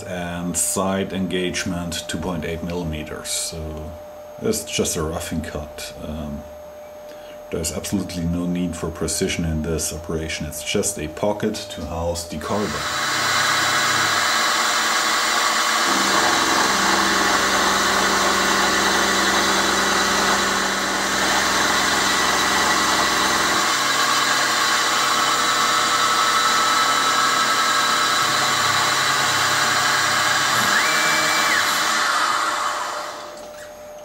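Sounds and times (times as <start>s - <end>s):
milling machine cutting steel: 12.5s - 33.4s.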